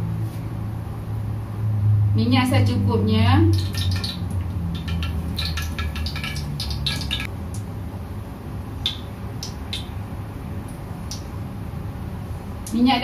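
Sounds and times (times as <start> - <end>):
oil pouring into wok: 3.6 - 7.3.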